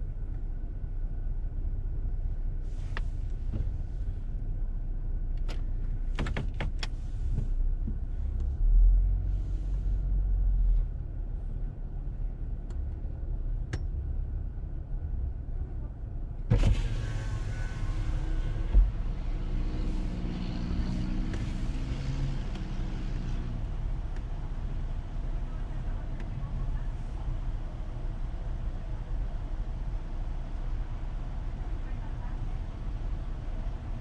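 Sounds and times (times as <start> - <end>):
clicks and rustles inside car: 5.3 - 8.6.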